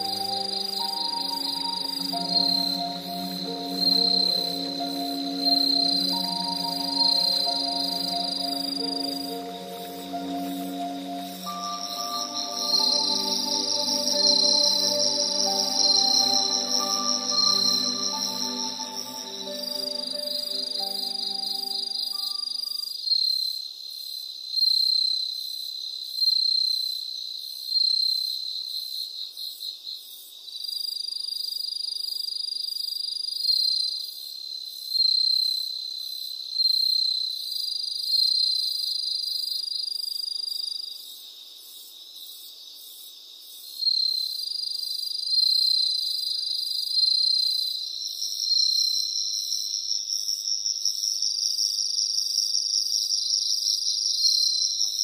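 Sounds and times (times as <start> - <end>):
insects chirping: 0.0 - 22.5.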